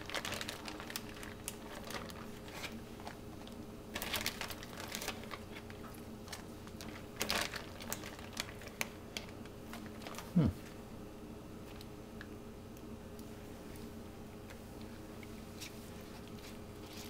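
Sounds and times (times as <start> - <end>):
banana leaf rustling: 0.0 - 3.2
faint steady hum: 0.0 - 17.0.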